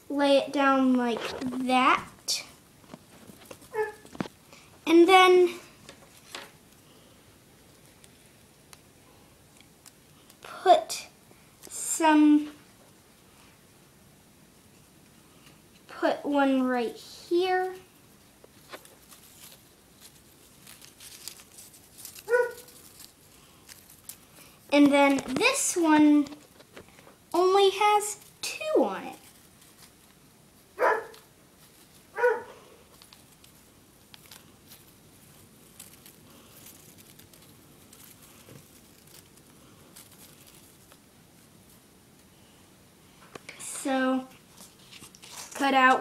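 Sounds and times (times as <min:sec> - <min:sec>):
paper and tape handling: 0:00.8 - 0:04.4, 0:18.4 - 0:41.8, 0:44.5 - 0:46.0.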